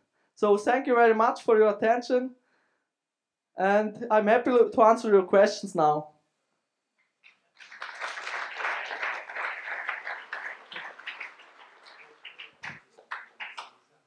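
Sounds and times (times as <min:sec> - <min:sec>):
audience applauding: 0:07.6 - 0:13.9.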